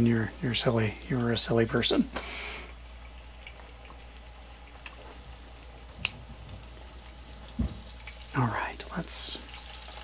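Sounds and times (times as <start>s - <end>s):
bacon sizzling and popping: 0.0s - 10.0s
steady low hum: 0.0s - 10.0s
dull knock: 7.6s - 7.9s.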